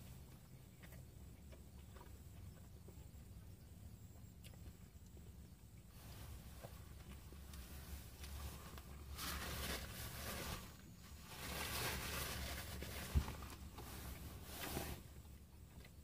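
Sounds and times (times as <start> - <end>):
steady low hum: 0.0 - 16.0
paper napkin rustling: 8.1 - 15.0.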